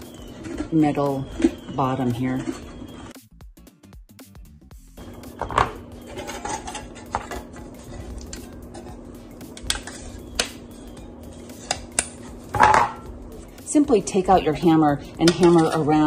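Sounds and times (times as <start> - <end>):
metal can clatter: 5.4 - 8.9, 12.5 - 13.1.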